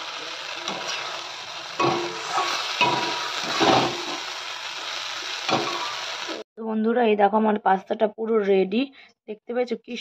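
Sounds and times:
vegetables sizzling in oil: 0.0s - 6.4s
metal spoon scraping pan: 1.8s - 4.2s.

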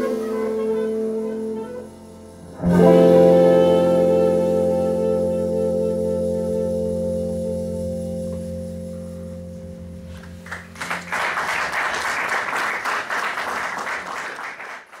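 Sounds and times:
jazz band held chord: 0.0s - 13.6s
audience applause: 10.4s - 15.0s.

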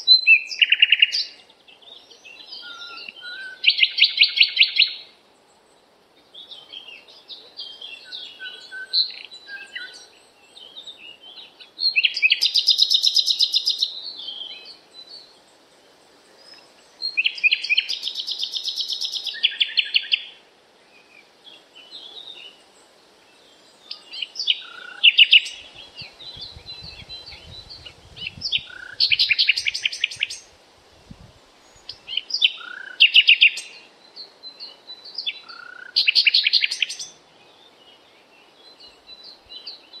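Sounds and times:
songbirds chirping: 0.0s - 40.0s
bird rapid trilled song: 23.9s - 30.5s.

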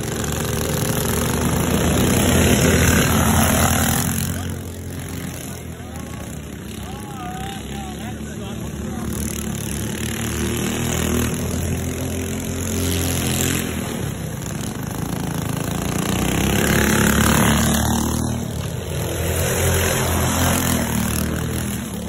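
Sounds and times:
go-kart engines revving: 0.0s - 22.0s.

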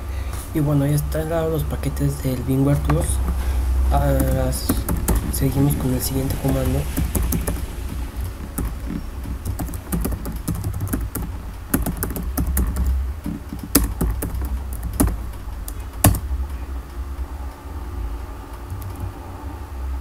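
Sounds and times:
steady low hum: 0.0s - 20.0s
keyboard key clicks: 8.6s - 16.3s.

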